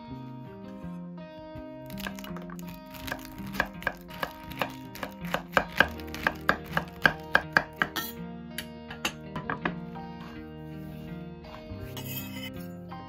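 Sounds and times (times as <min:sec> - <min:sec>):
cleaver chopping on wooden board: 0:03.0 - 0:08.1.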